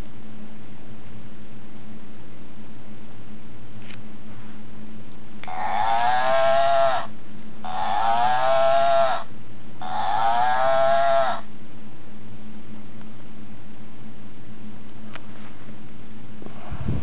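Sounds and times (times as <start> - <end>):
toy cow recorded moo: 5.4 - 11.5.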